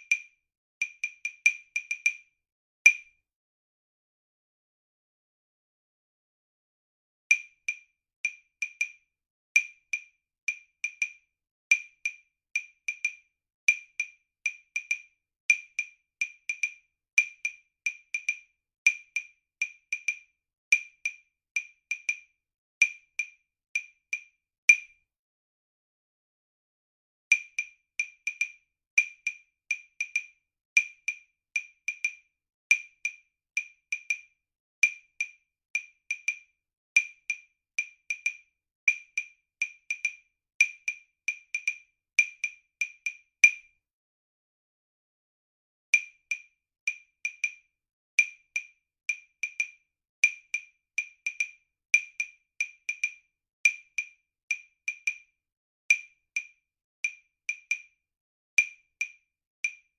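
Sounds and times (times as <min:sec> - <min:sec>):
wood block ticking rhythm: 0:00.0 - 0:02.2, 0:07.3 - 0:09.0, 0:09.6 - 0:24.9, 0:27.3 - 0:43.7, 0:46.0 - 0:47.6, 0:48.2 - 0:55.3, 0:55.9 - 0:57.9.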